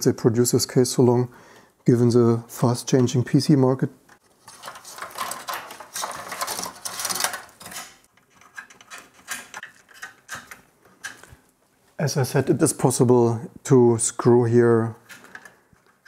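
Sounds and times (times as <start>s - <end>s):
cables and connectors rattling: 4.1s - 11.6s, 14.8s - 16.0s.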